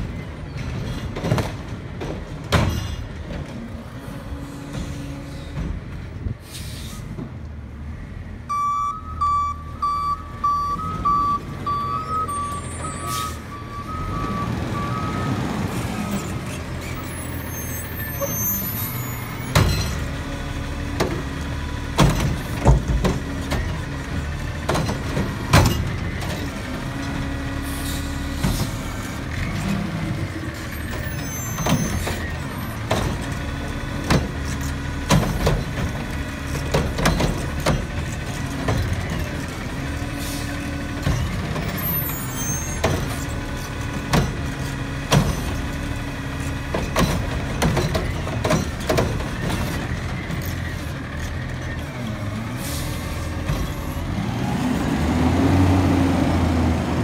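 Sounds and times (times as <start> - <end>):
diesel engine revving: 8.1 - 57.0
reversing beeper: 8.5 - 16.3.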